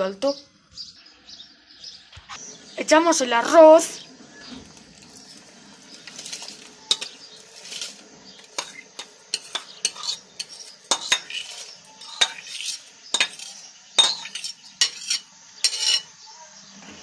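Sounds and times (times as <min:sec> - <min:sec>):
spoon clinking and scraping bowl: 0:05.0 - 0:16.2.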